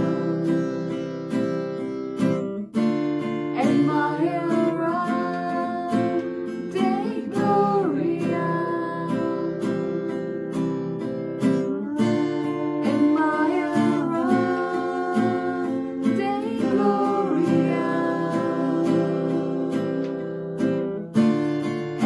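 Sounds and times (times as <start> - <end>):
acoustic guitar strumming: 0.0 - 22.0
voices singing: 3.6 - 10.7, 11.4 - 20.7.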